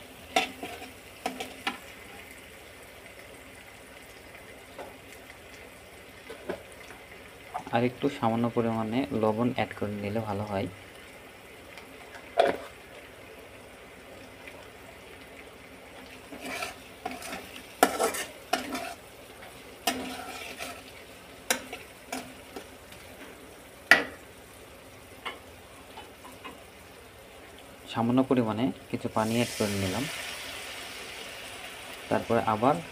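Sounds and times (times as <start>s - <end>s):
faint frying sizzle: 0.0s - 32.9s
spatula scraping a pan: 0.4s - 1.7s, 16.2s - 19.0s, 19.8s - 22.7s.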